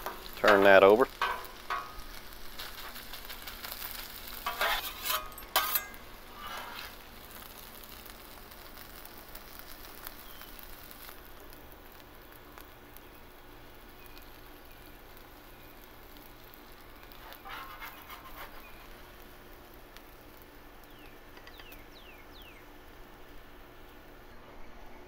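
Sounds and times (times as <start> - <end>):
food sizzling on a griddle: 0.0 - 24.3
metal spatulas scraping steel: 4.4 - 7.0, 17.2 - 18.9.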